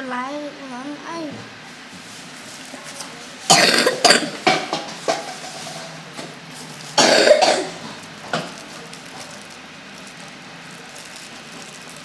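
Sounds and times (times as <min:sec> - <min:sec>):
person coughing: 0:03.5 - 0:04.4, 0:07.0 - 0:07.8.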